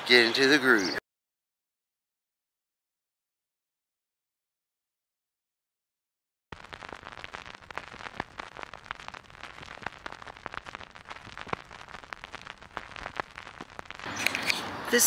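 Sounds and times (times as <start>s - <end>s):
vinyl crackles and pops: 6.5s - 15.0s
vinyl surface hiss: 6.8s - 15.0s.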